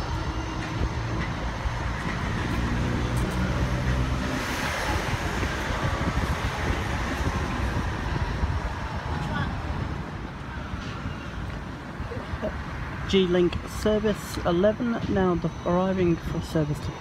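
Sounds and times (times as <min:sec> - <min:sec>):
tram wheels hissing on rails: 0:00.0 - 0:08.2
tram electric drive humming: 0:00.0 - 0:17.0.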